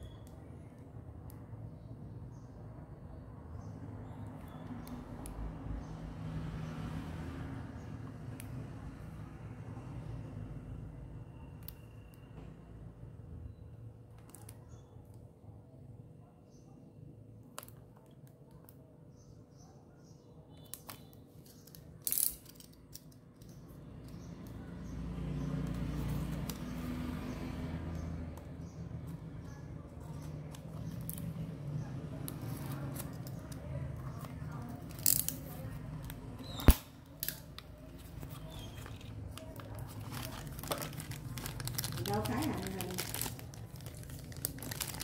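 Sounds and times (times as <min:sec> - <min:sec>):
sharp snap: 0:36.6 - 0:37.4
blade scraping plastic film: 0:38.0 - 0:45.0
toy box rustling: 0:38.0 - 0:45.0.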